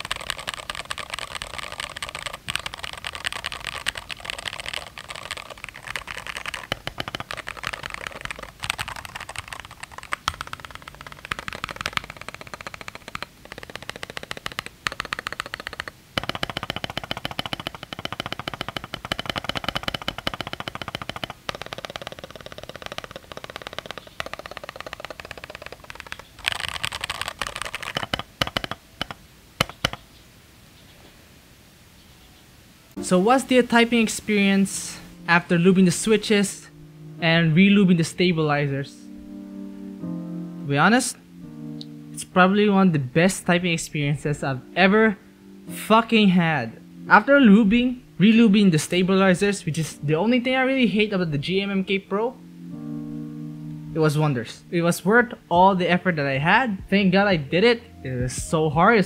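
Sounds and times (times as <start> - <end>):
mechanical keyboard typing: 0.0 - 30.0.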